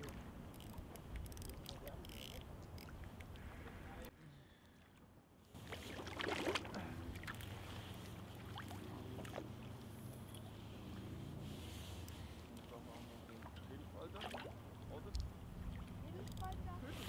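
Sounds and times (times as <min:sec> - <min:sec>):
water splashing and dripping: 0:05.8 - 0:07.5, 0:08.3 - 0:09.5.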